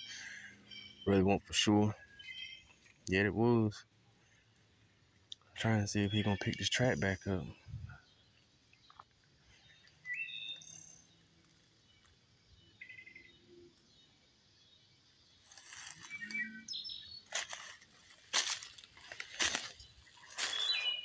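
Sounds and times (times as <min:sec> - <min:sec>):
songbird chirping: 0:00.0 - 0:21.0
footsteps crunching through dry leaves: 0:15.4 - 0:16.4, 0:17.1 - 0:21.0.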